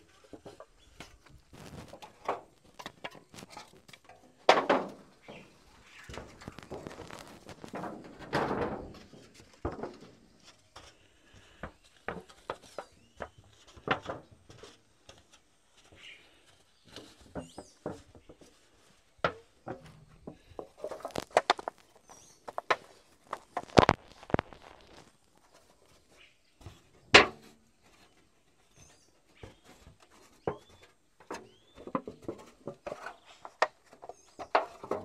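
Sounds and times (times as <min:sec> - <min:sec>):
rustle: 0:00.0 - 0:35.0
footsteps: 0:00.2 - 0:04.0, 0:05.2 - 0:12.8, 0:13.5 - 0:26.1.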